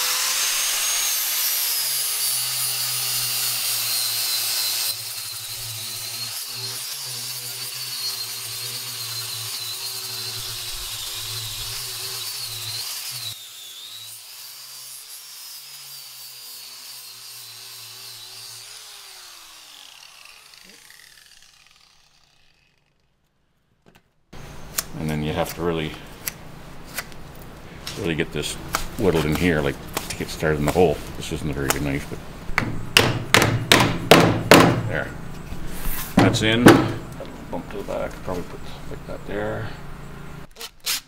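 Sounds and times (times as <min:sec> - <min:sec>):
angle grinder whining on wood: 0:00.0 - 0:23.1.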